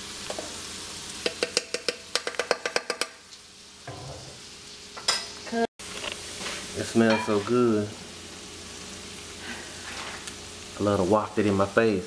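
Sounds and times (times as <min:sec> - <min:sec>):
food sizzling in a skillet: 0:00.0 - 0:12.0
spoon clinking against saucepan: 0:07.0 - 0:07.5.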